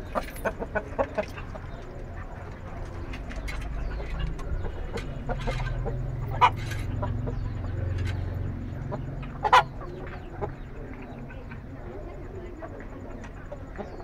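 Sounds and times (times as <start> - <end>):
chickens clucking: 0.0 - 14.0
steady low rumble: 0.0 - 14.0.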